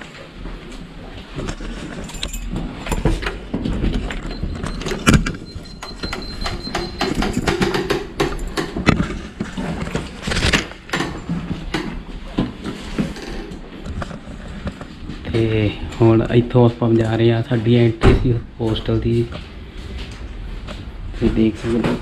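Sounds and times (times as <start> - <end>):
door opening with clicks: 2.1 - 9.2
footsteps: 8.4 - 22.0.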